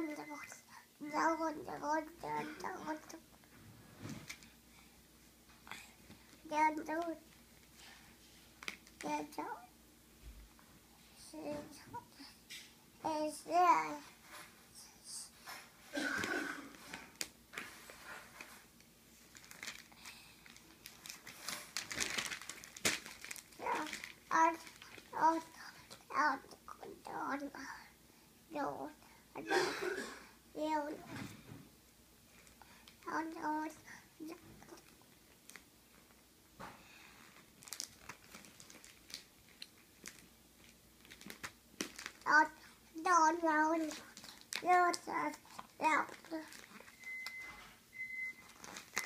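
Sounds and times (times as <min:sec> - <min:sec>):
rustling and crinkling: 0:02.6 - 0:04.6, 0:05.4 - 0:09.1, 0:15.4 - 0:26.0, 0:34.4 - 0:49.0
magazine pages handled: 0:19.3 - 0:25.1, 0:37.4 - 0:42.3.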